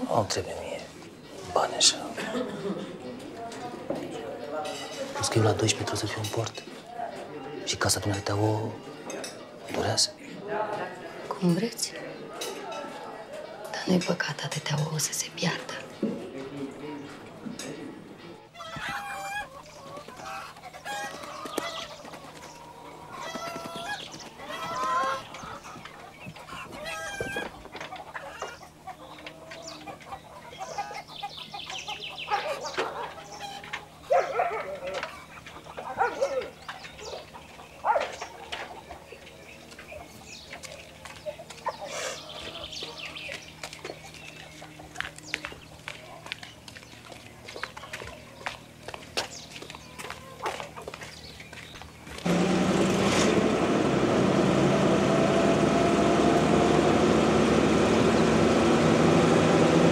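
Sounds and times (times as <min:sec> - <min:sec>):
hens clucking and squawking: 0:17.0 - 0:59.9.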